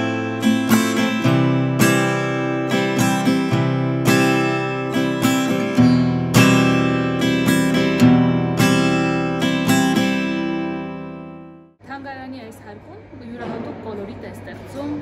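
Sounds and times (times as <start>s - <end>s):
strummed acoustic guitar: 0.0s - 11.8s.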